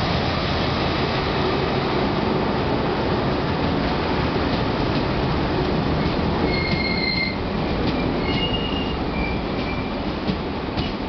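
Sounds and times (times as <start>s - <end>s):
train wheels rumbling on rail: 0.0s - 11.0s
high-pitched wheel squeals: 6.0s - 7.4s, 8.0s - 10.0s.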